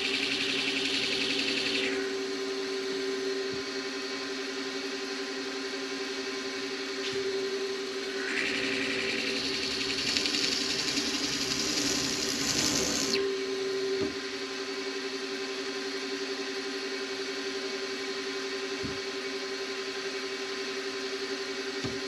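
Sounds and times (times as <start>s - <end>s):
spindle motor whine: 0.0s - 22.0s
milling cutter hissing: 8.1s - 13.2s.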